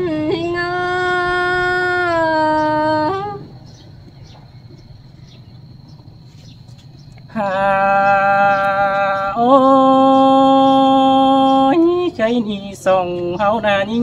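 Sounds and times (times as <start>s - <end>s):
person singing a long note: 0.0s - 3.5s, 7.3s - 14.0s.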